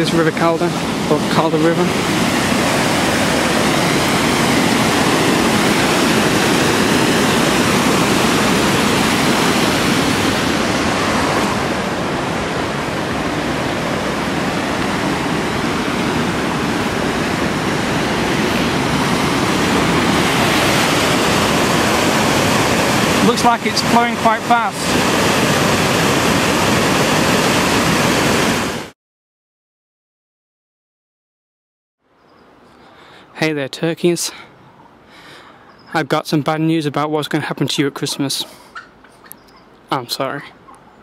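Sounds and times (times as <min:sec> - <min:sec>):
white water rushing over weir: 0:00.0 - 0:28.9.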